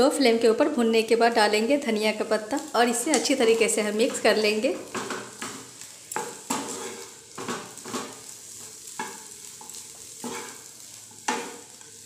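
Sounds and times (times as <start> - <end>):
faint sizzle: 0.0 - 12.0
spatula scraping frying pan: 3.2 - 12.0.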